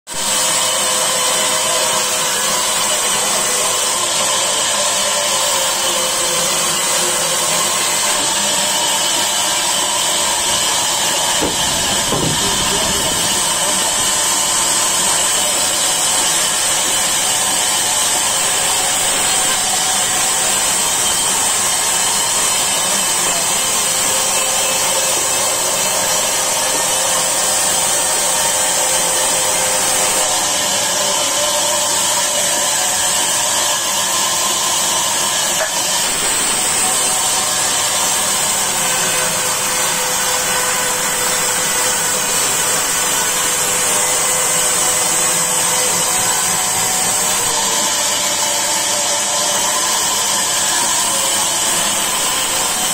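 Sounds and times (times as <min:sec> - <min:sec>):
band saw whining: 0:00.1 - 0:52.9.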